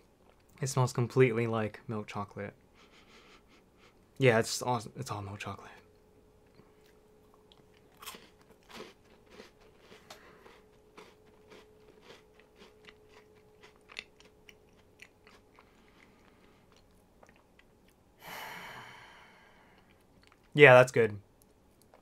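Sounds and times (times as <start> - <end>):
person chewing crunchy biscuit: 6.5 - 18.0.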